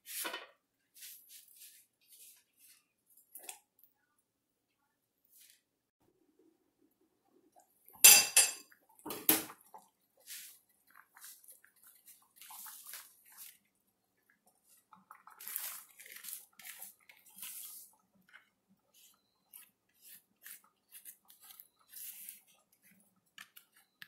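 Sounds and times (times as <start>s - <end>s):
glass lid clattering on saucepan: 8.0s - 9.4s.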